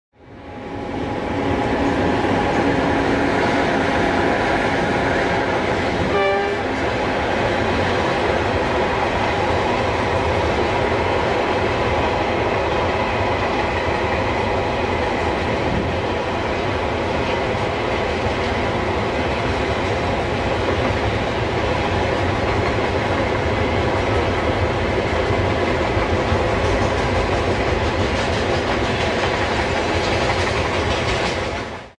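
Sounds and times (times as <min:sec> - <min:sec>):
train wheels on rails: 0:00.3 - 0:32.0
train horn blast: 0:06.0 - 0:06.8.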